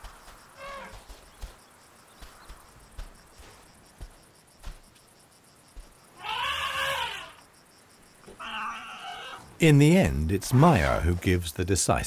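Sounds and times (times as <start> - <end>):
young elephant squealing call: 0.6 - 0.9, 6.2 - 7.4, 8.4 - 9.4.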